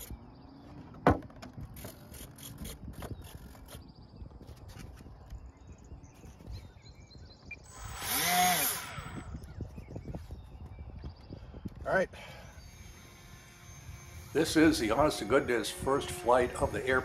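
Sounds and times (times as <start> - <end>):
electric motor spinning propeller: 7.6 - 9.6, 12.4 - 17.0.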